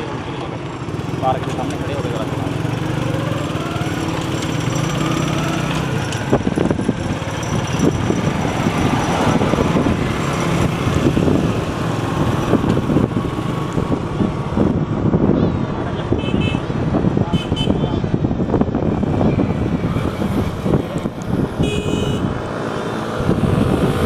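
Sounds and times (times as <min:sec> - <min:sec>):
road noise: 0:00.0 - 0:24.0
small motorcycle engine: 0:00.7 - 0:13.6
wind buffeting microphone: 0:01.9 - 0:24.0.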